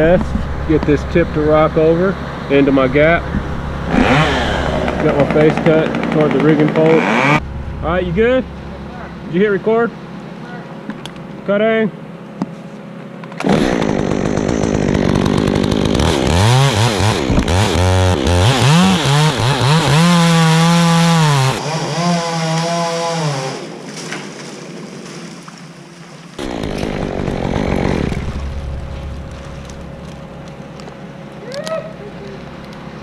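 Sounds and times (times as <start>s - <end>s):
chainsaw cutting wood: 3.8s - 7.4s, 13.3s - 25.2s, 26.4s - 30.4s.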